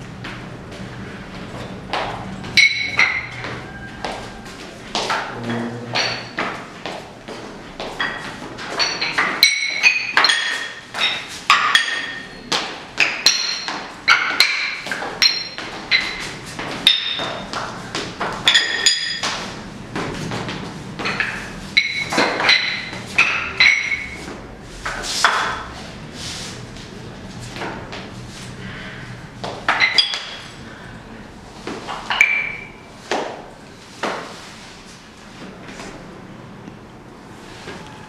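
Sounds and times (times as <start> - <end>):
floor tiles clinking under footsteps: 0.1 - 25.8, 29.4 - 30.7.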